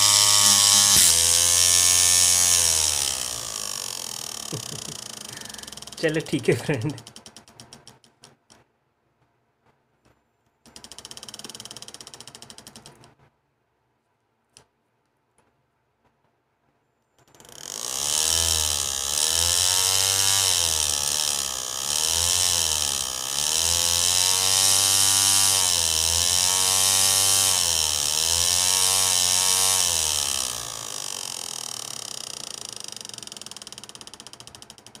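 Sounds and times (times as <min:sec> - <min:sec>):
hard disk motor whining: 0:00.0 - 0:07.2, 0:26.7 - 0:34.6.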